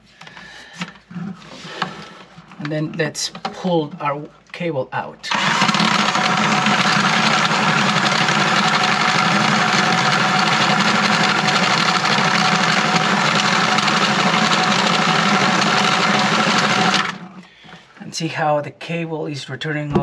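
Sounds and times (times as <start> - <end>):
cordless drill spinning drain auger: 5.3 - 17.5.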